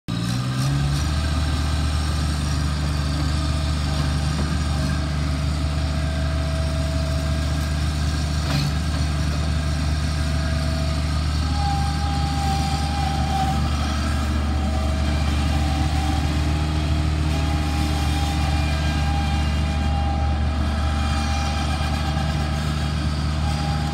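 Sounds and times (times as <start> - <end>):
diesel engine running: 0.1 - 23.9.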